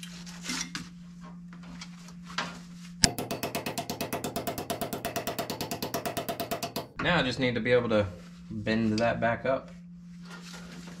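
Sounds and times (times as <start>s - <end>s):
steady hum: 2.8s - 10.3s
machine pulsing rapidly: 3.0s - 7.0s.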